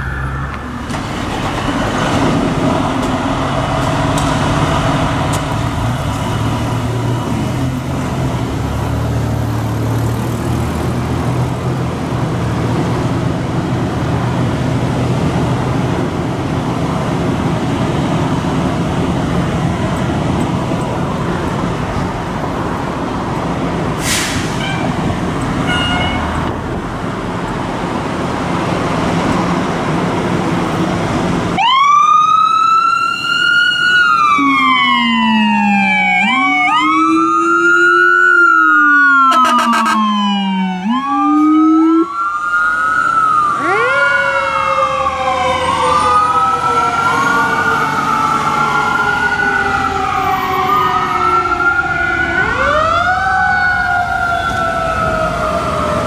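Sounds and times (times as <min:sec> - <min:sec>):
air hiss: 0:24.0 - 0:24.6.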